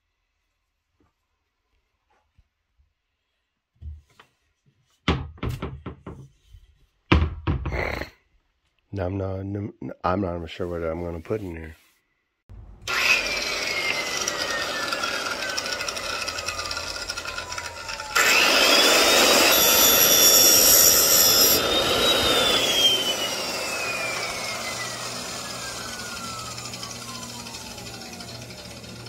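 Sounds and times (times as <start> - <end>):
electric drill whining: 12.8 - 29.0.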